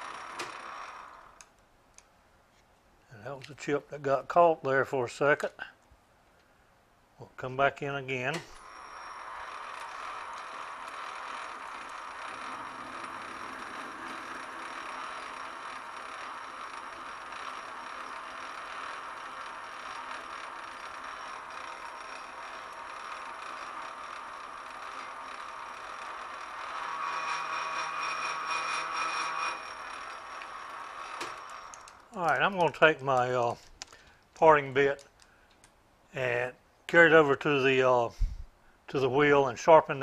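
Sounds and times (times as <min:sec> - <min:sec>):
metal lathe running: 0:00.0 - 0:01.5, 0:08.6 - 0:32.9
parting tool cutting metal: 0:00.0 - 0:01.5, 0:08.3 - 0:34.0.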